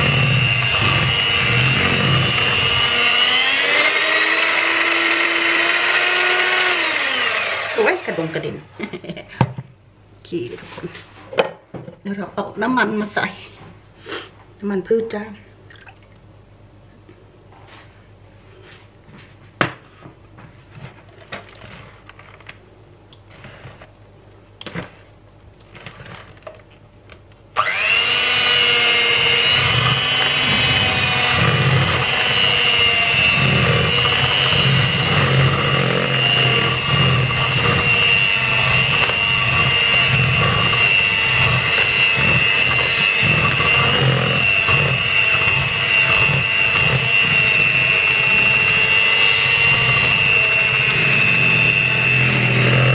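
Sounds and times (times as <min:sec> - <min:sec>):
electric hand mixer whining: 0:00.0 - 0:08.6, 0:27.6 - 0:52.9.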